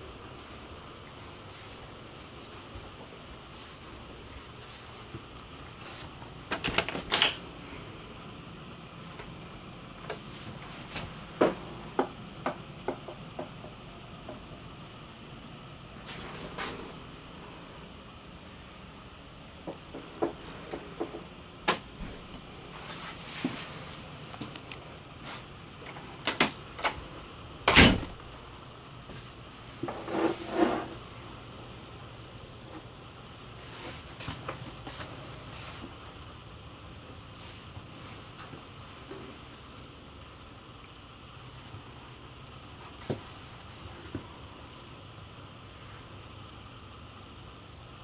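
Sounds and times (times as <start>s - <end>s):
steady hiss: 0.0s - 48.0s
door creaking: 6.5s - 7.4s, 27.7s - 28.2s.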